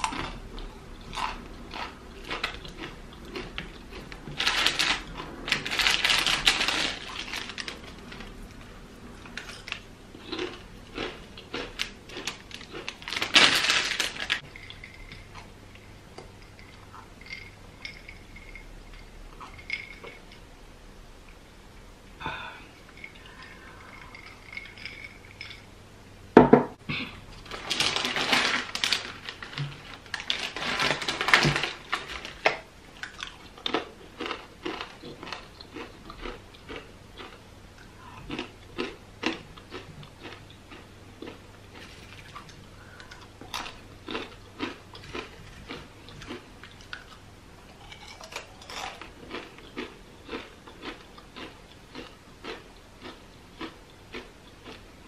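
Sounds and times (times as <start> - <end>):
crisp chips crunching: 0.0 - 15.5, 22.9 - 25.6, 27.3 - 54.8
crackling rustle: 1.0 - 15.9, 27.3 - 37.4.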